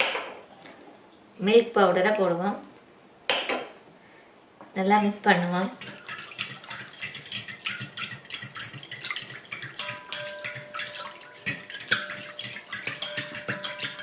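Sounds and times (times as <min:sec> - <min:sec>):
metal spoon stirring in glass bowl: 0:05.0 - 0:14.0.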